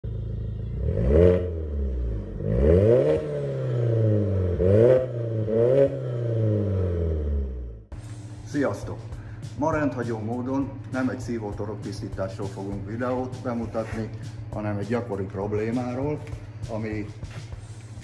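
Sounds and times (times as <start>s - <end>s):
car engine revving: 0.0s - 8.0s.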